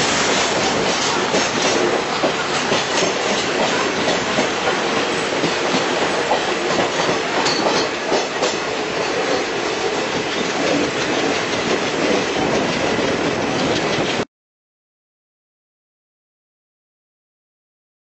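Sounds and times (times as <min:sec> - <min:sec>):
wheels clattering over rail joints: 0:00.0 - 0:14.2
train rolling on track: 0:00.0 - 0:14.3.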